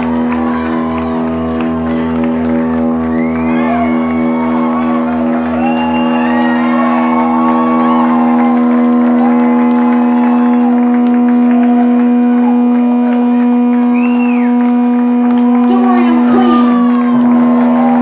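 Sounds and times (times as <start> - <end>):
audience cheering and whooping: 0.0 - 18.0
rock band droning low note: 0.0 - 18.0.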